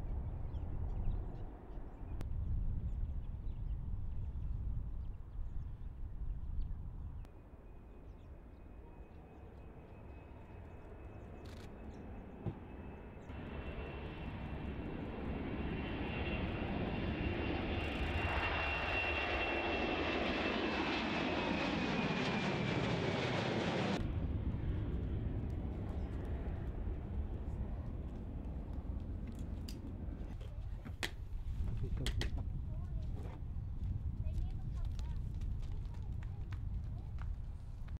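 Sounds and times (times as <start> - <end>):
jet engines with turbine whine: 8.2 - 30.4.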